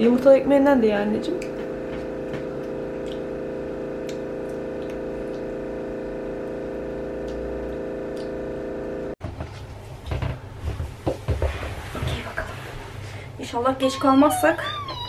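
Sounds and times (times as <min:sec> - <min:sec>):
refrigerator humming loudly: 0:00.0 - 0:15.0.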